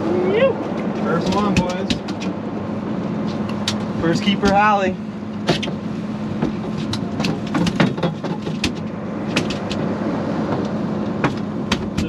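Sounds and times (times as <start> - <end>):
boat engine idling: 0.0 - 12.0
sharp clicks and knocks: 0.6 - 2.4, 3.2 - 4.7, 5.4 - 5.8, 6.4 - 9.9, 10.5 - 12.0.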